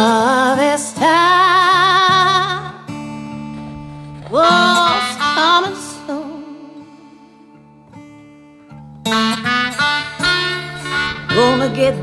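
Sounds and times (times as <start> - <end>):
acoustic guitar notes: 0.0 - 12.0
sliding held melody notes: 1.9 - 7.6, 9.0 - 12.0.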